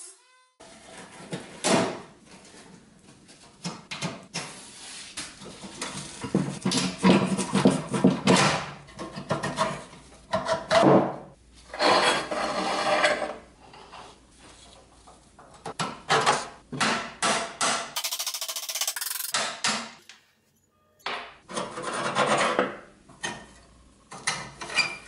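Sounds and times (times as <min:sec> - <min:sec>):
metal toy parts clanking and scraping: 0:18.0 - 0:19.4.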